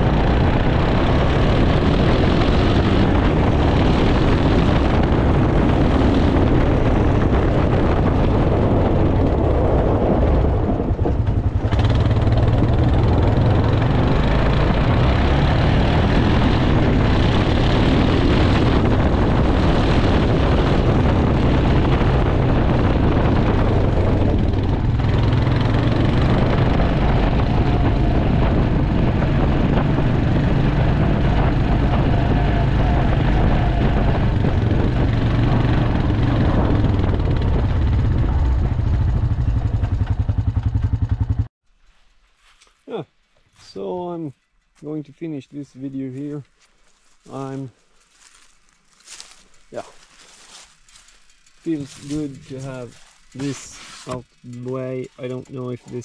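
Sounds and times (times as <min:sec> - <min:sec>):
atv engine running: 0:00.0 - 0:41.5, 0:46.5 - 0:56.0.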